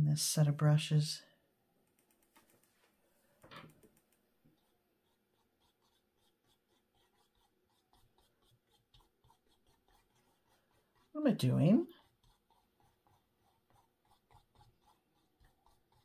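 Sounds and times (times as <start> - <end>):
paintbrush dabbing on canvas: 3.7 - 16.0.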